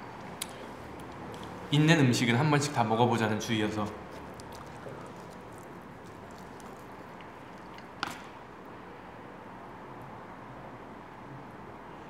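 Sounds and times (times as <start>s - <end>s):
quiet eating and chewing: 0.1s - 1.7s, 3.5s - 8.4s.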